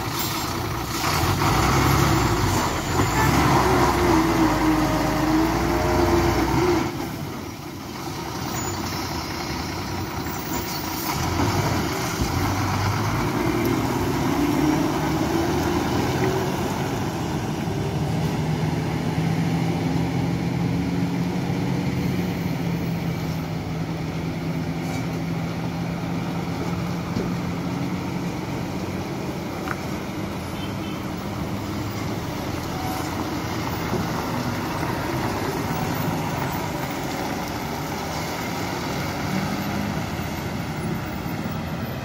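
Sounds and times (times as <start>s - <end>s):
lorry diesel engine hum: 0.0s - 42.0s
road noise: 0.0s - 42.0s.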